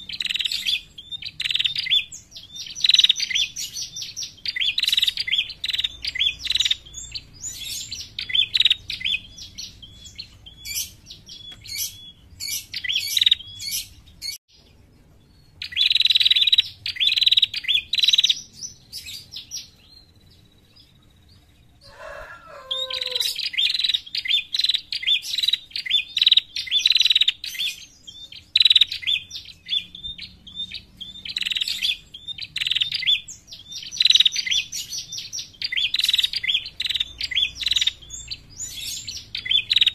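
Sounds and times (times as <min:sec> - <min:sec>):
bird chirping: 0:00.0 - 0:39.9
low falling bird call: 0:21.8 - 0:24.3.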